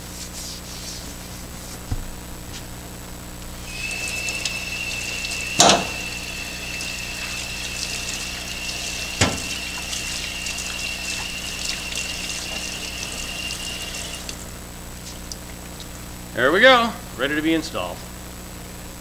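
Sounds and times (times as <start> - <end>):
running water: 3.6 - 14.6.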